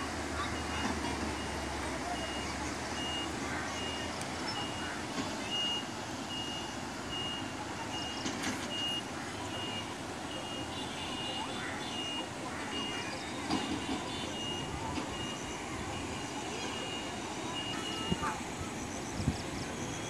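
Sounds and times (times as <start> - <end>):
outdoor background noise: 0.0 - 20.0
reversing alarm beeps: 0.5 - 18.8.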